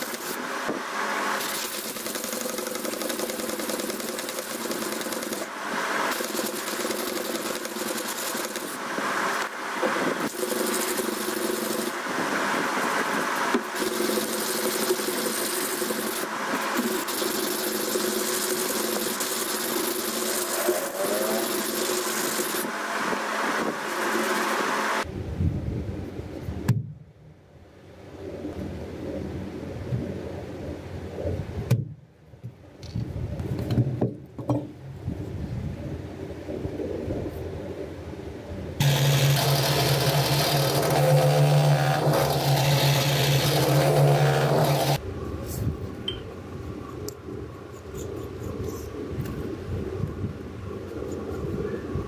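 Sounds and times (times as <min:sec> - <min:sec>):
machine-like hum: 0:00.0 - 0:27.0.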